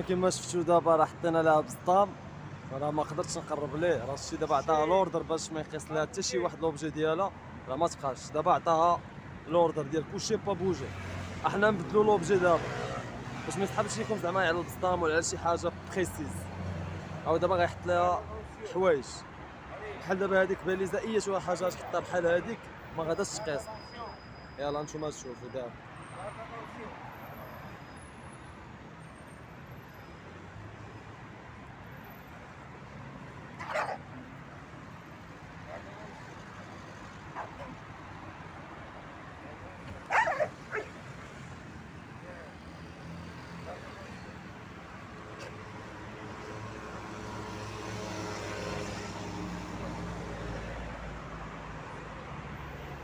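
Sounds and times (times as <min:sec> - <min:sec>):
road traffic hum: 0:00.0 - 0:53.0
dog barking: 0:33.6 - 0:34.0, 0:40.1 - 0:41.0
vehicle passing: 0:45.4 - 0:51.8.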